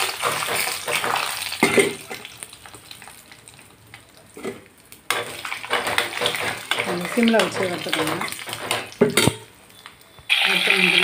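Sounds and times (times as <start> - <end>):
nuts sizzling in oil: 0.0 - 11.0
spoon scraping pan: 4.3 - 11.0.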